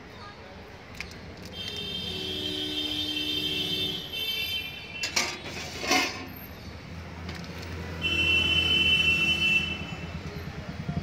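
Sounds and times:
ladle clinking on steel dishes: 5.0 - 6.3.

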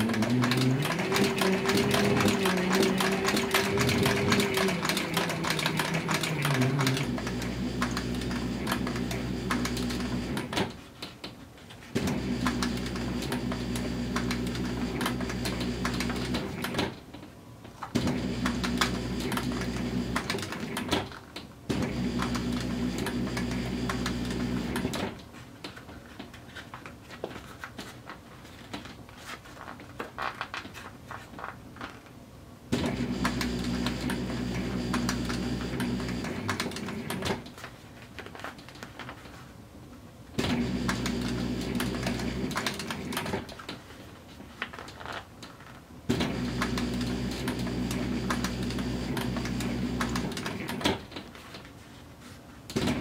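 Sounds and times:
sewing machine motor humming: 0.0 - 10.6, 12.0 - 16.8, 18.0 - 20.8, 21.7 - 25.0, 32.8 - 37.3, 40.4 - 43.4, 46.1 - 50.8.

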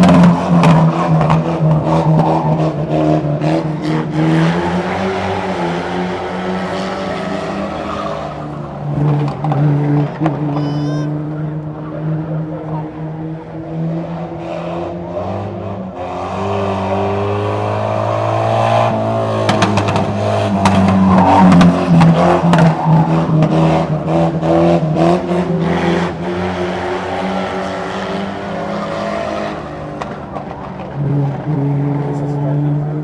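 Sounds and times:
racing car engines: 0.0 - 33.0
sharp cracks and clatters: 19.4 - 22.8, 29.9 - 31.0.

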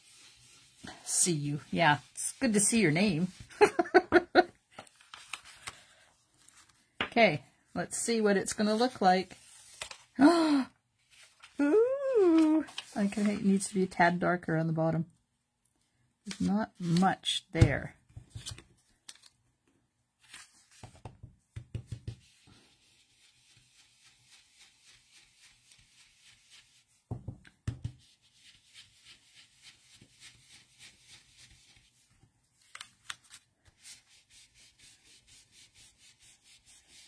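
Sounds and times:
brush swishing over cardstock: 0.0 - 3.8, 21.9 - 27.1, 28.0 - 32.1, 33.7 - 37.0.

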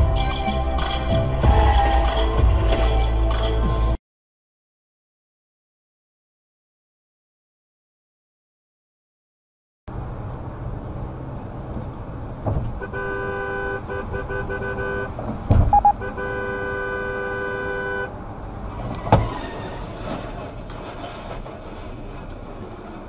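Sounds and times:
road noise of moving car: 0.0 - 4.0, 9.9 - 23.0
vehicle horn blasts: 12.8 - 18.2
loud thump: 15.5 - 15.9.

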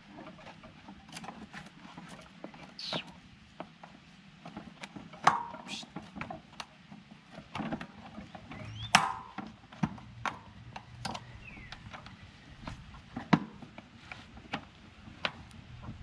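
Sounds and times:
tire lever clicks and knocks: 7.4 - 13.8
rubber tire squeaks: 8.3 - 9.4.

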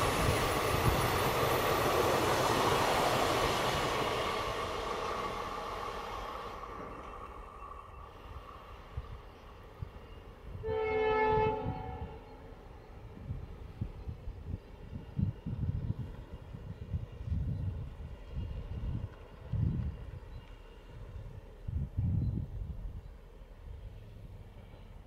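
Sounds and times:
train coaches rumbling on track: 0.0 - 25.0
locomotive horn blast: 10.5 - 12.4.

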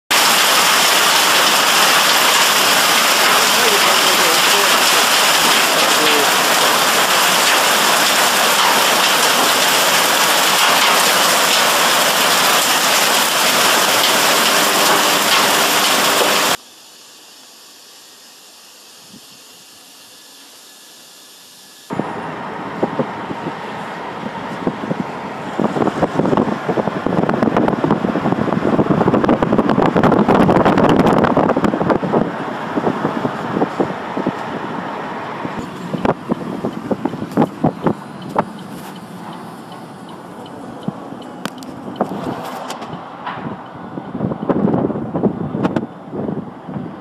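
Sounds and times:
hailstones pelting down: 0.1 - 16.6
wind buffeting microphone: 21.9 - 47.0.

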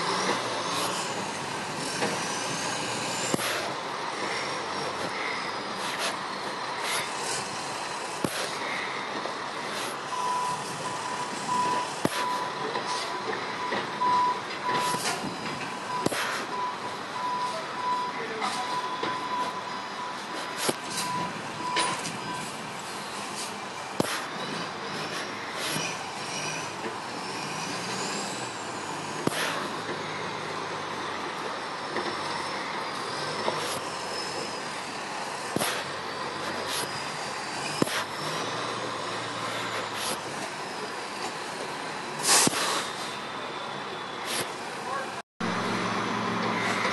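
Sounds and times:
outdoor background noise: 0.0 - 46.9
winch and truck engine running: 0.0 - 46.9
vehicle backup alarm beeping: 8.8 - 25.3.

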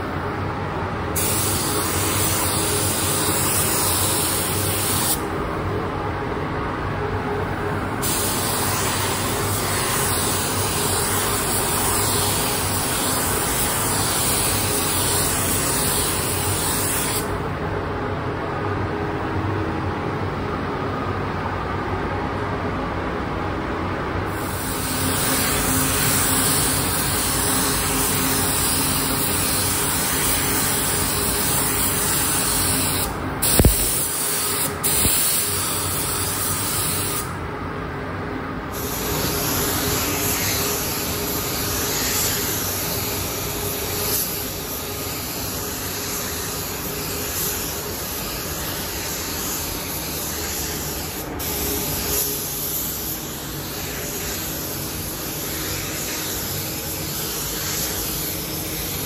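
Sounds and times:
spray gun hissing: 1.2 - 5.2, 8.0 - 17.3, 24.4 - 37.3, 38.7 - 59.0.

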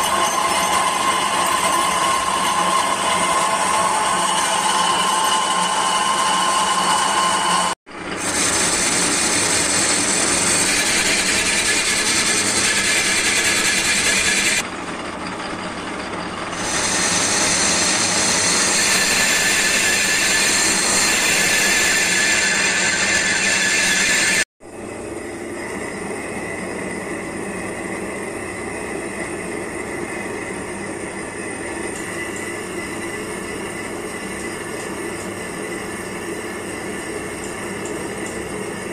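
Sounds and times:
metal lathe cutting: 0.0 - 24.5.

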